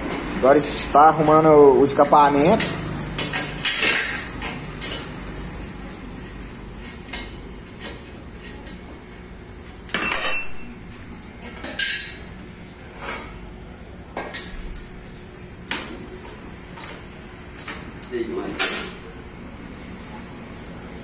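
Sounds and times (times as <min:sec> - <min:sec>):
ringing metal clank: 0:09.9 - 0:10.8.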